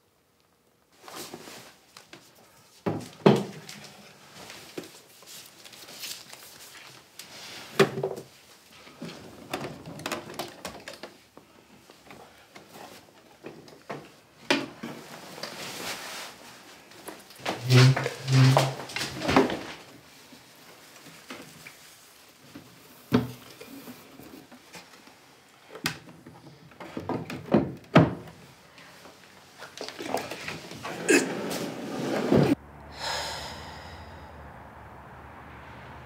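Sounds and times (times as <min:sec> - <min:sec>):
bedclothes rustling: 0:00.9 - 0:07.7, 0:14.9 - 0:22.9
knocks and bumps of people moving: 0:25.8 - 0:28.4.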